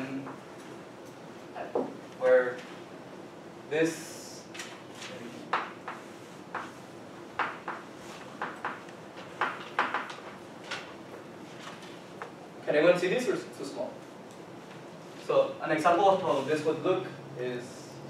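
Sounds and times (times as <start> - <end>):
chalk writing on blackboard: 5.5 - 6.8.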